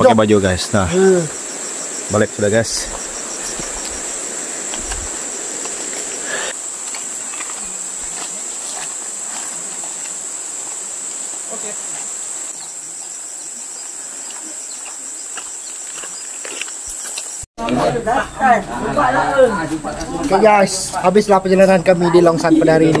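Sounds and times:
shrill insect chorus: 0:00.0 - 0:17.5, 0:18.2 - 0:23.0
broad hiss: 0:00.2 - 0:12.6.

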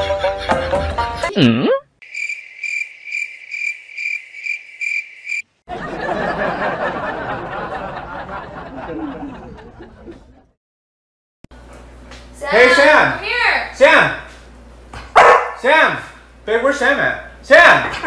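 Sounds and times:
cricket chirping: 0:02.0 - 0:05.5.

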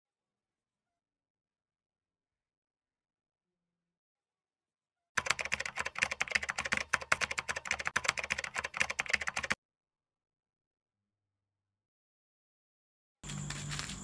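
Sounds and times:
rapid keystroke clicks: 0:05.2 - 0:09.6.

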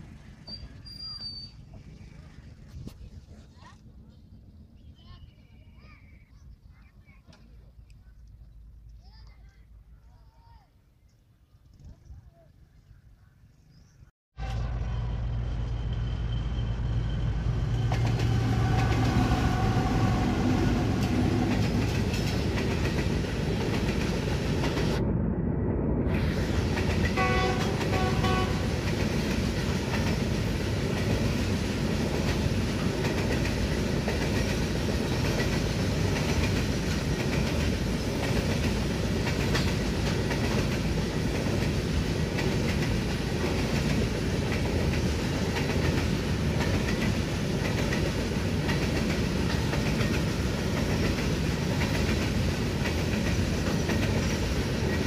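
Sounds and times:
diesel locomotive engine: 0:00.0 - 0:06.4, 0:14.4 - 0:55.0
train wheels clattering over rail joints: 0:20.9 - 0:25.0, 0:26.6 - 0:55.0
locomotive horn blasts: 0:27.2 - 0:28.8.

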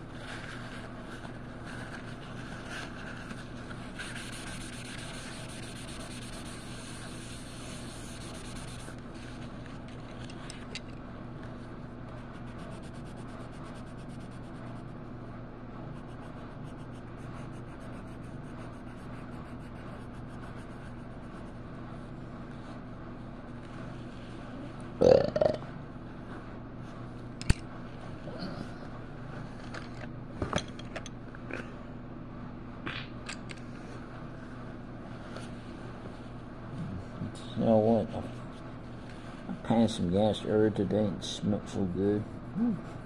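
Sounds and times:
colouring strokes scratching paper: 0:00.1 - 0:10.0, 0:12.2 - 0:15.0, 0:16.0 - 0:21.6.

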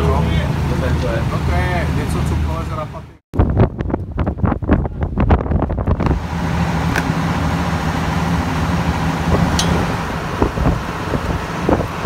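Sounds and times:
boat machinery humming: 0:00.0 - 0:03.2, 0:05.9 - 0:12.0.

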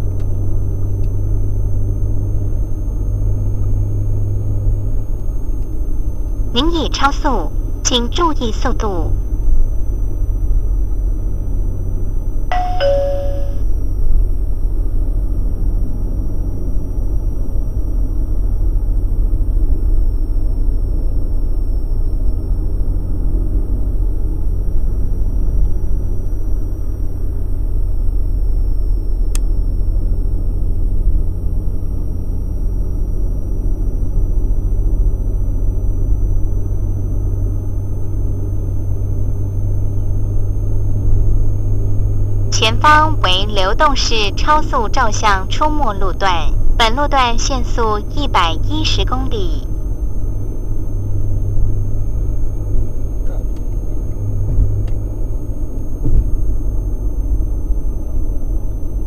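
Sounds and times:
car road and engine rumble: 0:00.0 - 0:59.0
two-note electronic chime: 0:12.5 - 0:13.6.

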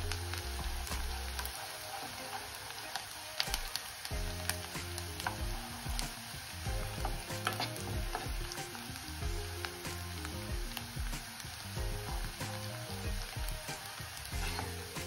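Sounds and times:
onions sizzling in a pan: 0:00.0 - 0:15.0
ladle scraping pan: 0:06.8 - 0:08.8, 0:14.3 - 0:15.0.

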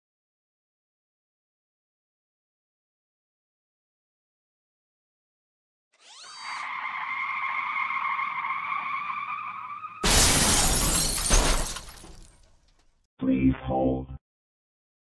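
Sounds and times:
tyres screeching: 0:06.0 - 0:10.7
crash of shattering glass: 0:10.0 - 0:12.5.

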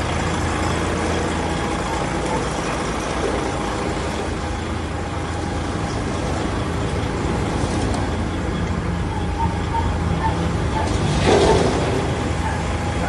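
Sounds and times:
diesel truck engine idling: 0:00.0 - 0:13.0.

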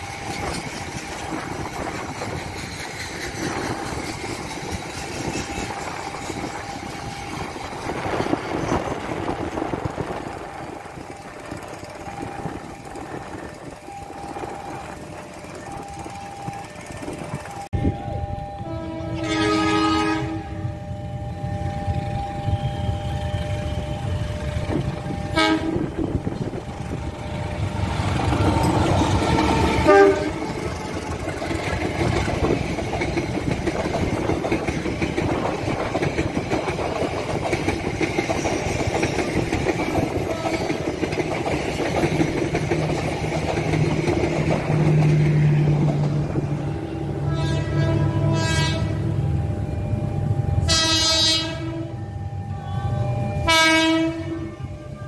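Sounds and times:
train rumbling past: 0:00.0 - 0:55.0
train horn: 0:17.8 - 0:26.2, 0:29.2 - 0:31.0, 0:40.2 - 0:40.9, 0:47.0 - 0:49.2, 0:50.6 - 0:55.0.

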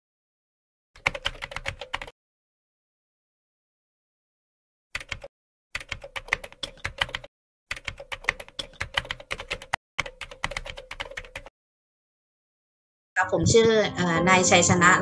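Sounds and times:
keyboard typing clicks: 0:01.0 - 0:02.1, 0:05.0 - 0:11.5.

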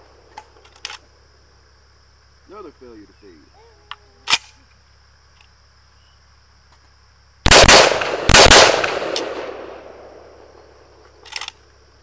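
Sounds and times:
rifle shots echoing: 0:07.5 - 0:10.6.

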